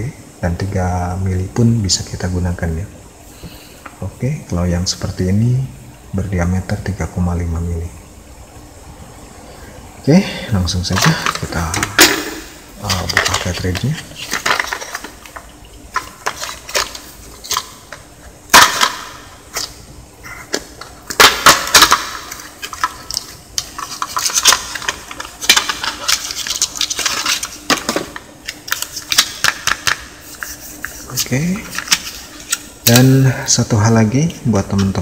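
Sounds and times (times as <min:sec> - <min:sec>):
plastic blister pack crackling: 0:10.8 - 0:33.0.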